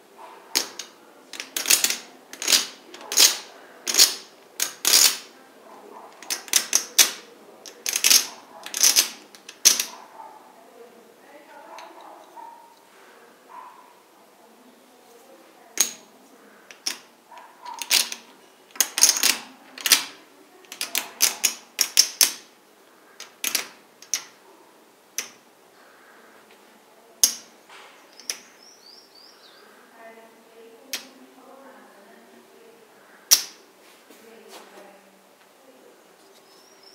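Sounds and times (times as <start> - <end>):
poker chips clacking: 0.6 - 5.3, 6.2 - 10.0, 16.7 - 17.1, 17.7 - 22.5, 23.2 - 24.4, 25.2 - 25.4, 27.2 - 27.5, 28.1 - 28.6, 33.3 - 33.6.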